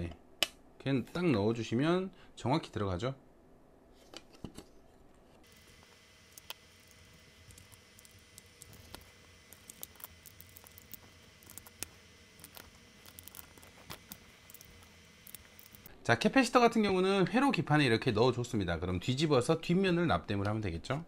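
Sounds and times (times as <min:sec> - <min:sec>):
capacitors clicking into circuit board: 0:05.5 - 0:15.9.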